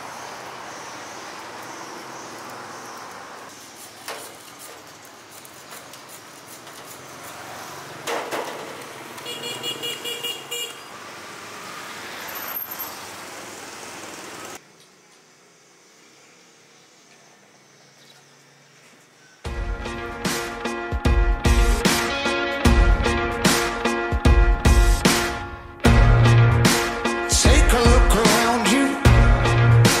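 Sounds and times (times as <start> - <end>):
traffic ambience: 0.0 - 20.7
vehicle horn tooting: 9.2 - 10.9.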